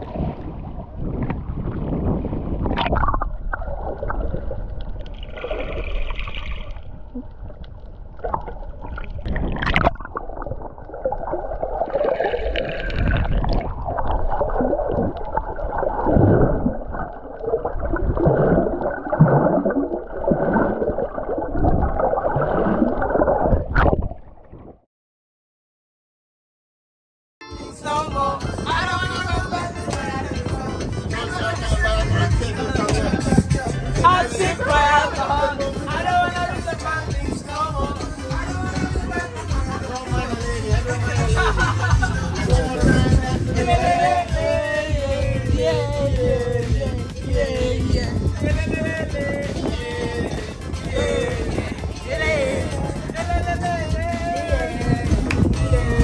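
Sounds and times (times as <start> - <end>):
muffled water sloshing: 0.0 - 24.8.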